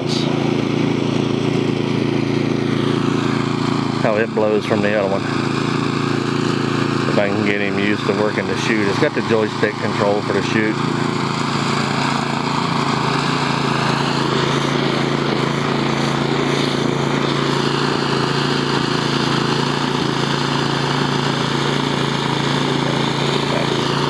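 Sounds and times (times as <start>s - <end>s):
snow blower engine drone: 0.0s - 24.0s
rushing hiss of snow: 16.0s - 16.8s.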